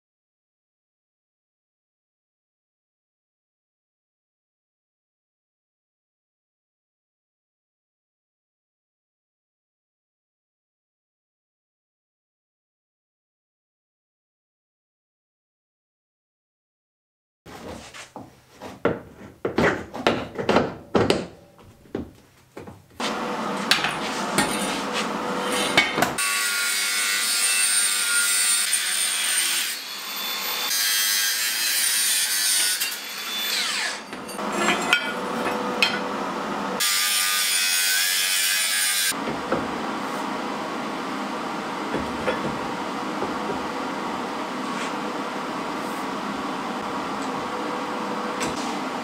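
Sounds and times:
metal knocks and clanks: 18.8s - 22.8s, 23.6s - 26.2s, 41.9s - 43.7s
angle grinder cutting steel: 23.1s - 39.2s.

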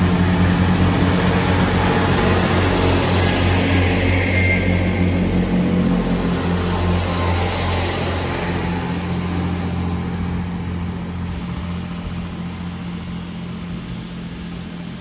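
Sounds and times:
diesel train engine humming: 0.0s - 15.0s.

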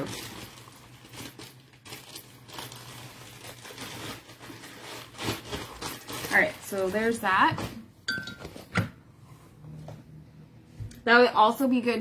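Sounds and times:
fabric bag rustling: 0.0s - 7.9s.

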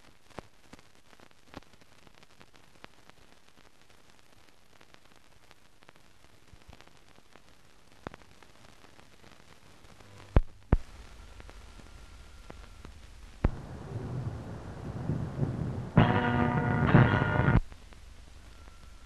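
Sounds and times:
film hiss: 0.0s - 19.0s
low hum: 10.9s - 19.0s.

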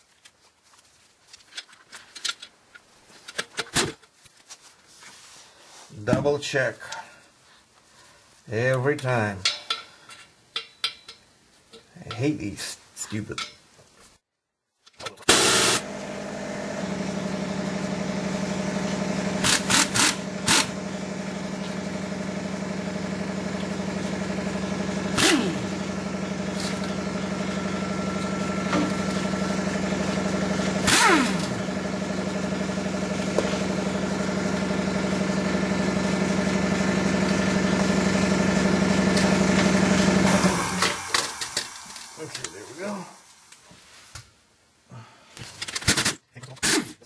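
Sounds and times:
pneumatic ratchet bursts: 15.3s - 15.8s, 19.4s - 20.7s, 25.2s - 25.6s, 30.8s - 31.6s
steady motor hum: 15.3s - 43.5s.

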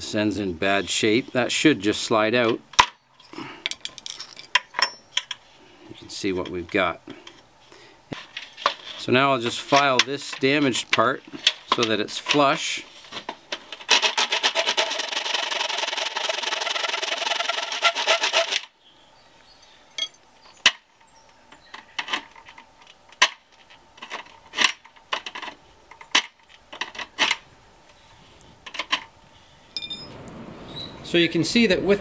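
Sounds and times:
hand file rasping on metal: 16.6s - 18.6s.

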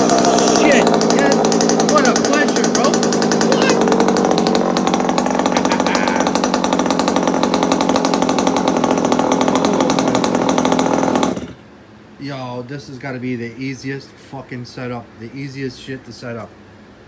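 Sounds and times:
two-stroke engine idling: 0.0s - 11.6s.

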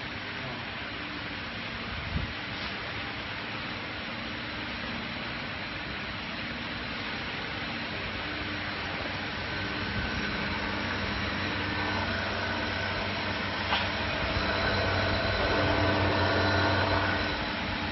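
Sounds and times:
cnc router machine hum: 3.2s - 17.9s.

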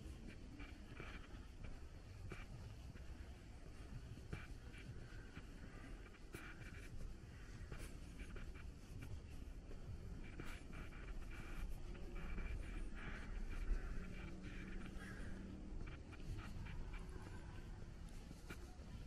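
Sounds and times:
footstep scuffs and rustles: 0.0s - 19.0s
steady low rumble: 8.6s - 19.0s.

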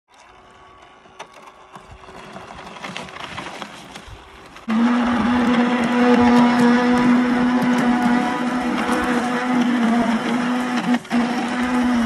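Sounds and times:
steady droning tone: 4.2s - 12.0s.

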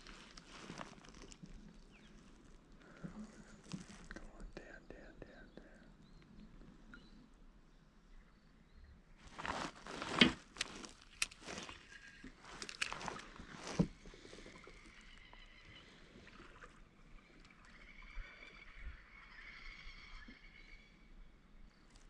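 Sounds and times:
water sloshing: 9.3s - 15.1s.

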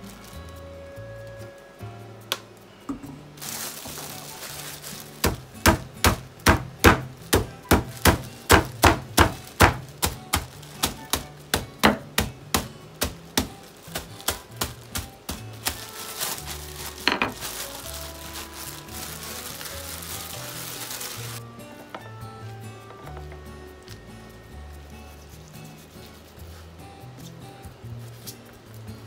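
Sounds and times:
plastic bag rustling: 3.3s - 21.4s.

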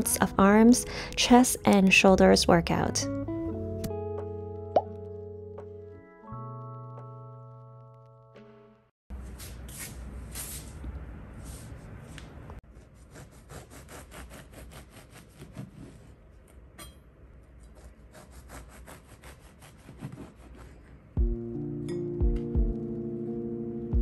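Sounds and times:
bread knife sawing through loaf: 12.8s - 16.1s, 17.6s - 20.8s.

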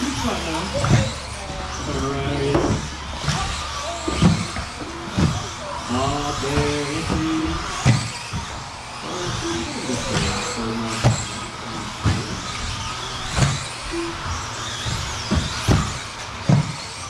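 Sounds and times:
electric rc cars racing: 0.0s - 17.0s
cars knocking on track boards: 0.1s - 17.0s.

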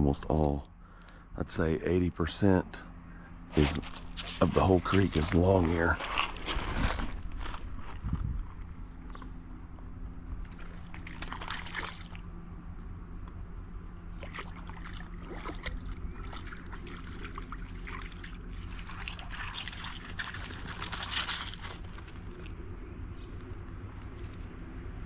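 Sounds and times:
steady low hum: 0.0s - 25.0s
creek water trickling and splashing: 10.5s - 12.4s, 14.2s - 22.6s.

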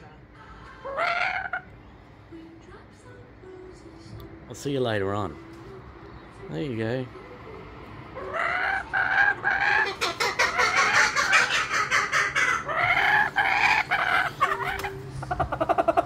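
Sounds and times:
kookaburra laughing call: 8.2s - 16.0s.

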